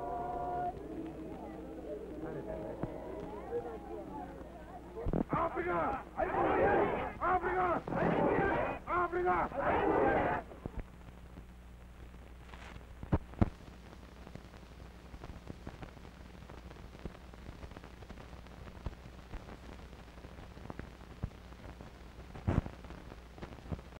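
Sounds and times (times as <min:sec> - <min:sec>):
low hum: 0:00.0 - 0:12.4
crackle of scattered clicks: 0:00.3 - 0:06.1, 0:10.6 - 0:24.0.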